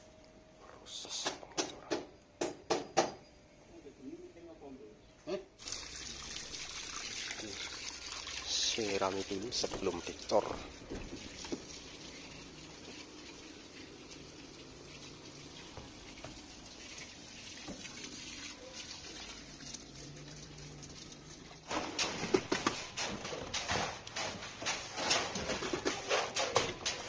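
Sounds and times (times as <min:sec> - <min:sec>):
hose spraying water: 0:05.6 - 0:27.0
knocks and clatter: 0:21.7 - 0:27.0.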